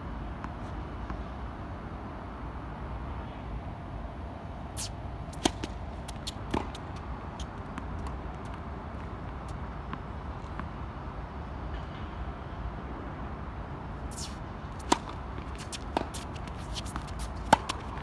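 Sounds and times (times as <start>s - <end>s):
background traffic rumble: 0.0s - 18.0s
racket swish: 4.7s - 8.1s, 14.1s - 18.0s
racket hitting tennis ball: 4.8s - 10.0s, 14.1s - 18.0s
tennis ball ticks: 5.3s - 10.0s.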